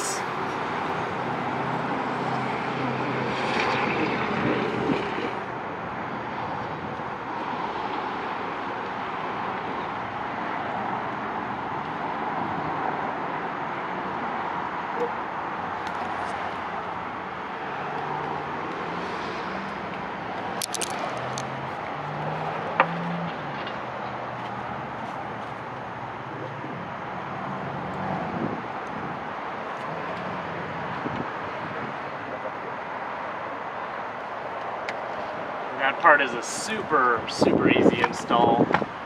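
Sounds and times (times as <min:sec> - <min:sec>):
rushing outdoor background noise: 0:00.0 - 0:39.0.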